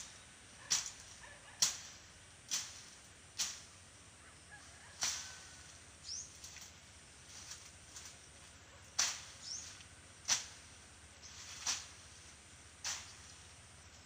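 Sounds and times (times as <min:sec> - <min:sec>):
machete swishing through grass: 0:00.7 - 0:03.8, 0:05.0 - 0:05.6, 0:08.8 - 0:13.4.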